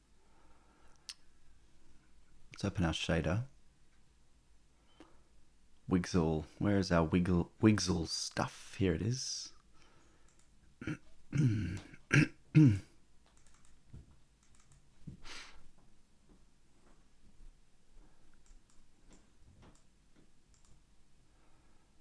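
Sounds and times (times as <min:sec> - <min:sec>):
keyboard and mouse clicks: 0:10.2 - 0:10.5, 0:13.2 - 0:14.9, 0:18.3 - 0:20.8
man making wordless vocal sounds: 0:10.8 - 0:12.9
short breathy noise: 0:15.2 - 0:15.7.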